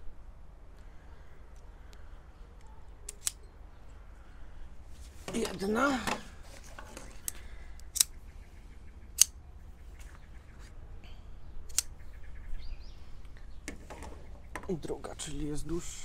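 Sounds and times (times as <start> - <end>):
faint handling rattles: 5.0 - 7.4, 13.6 - 15.4
tent pole sections clicking: 5.2 - 8.1, 11.7 - 12.0.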